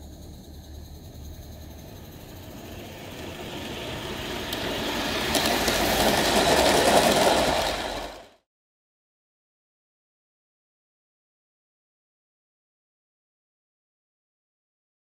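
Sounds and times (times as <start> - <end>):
model train wheels rattling on rails: 1.5 - 8.4.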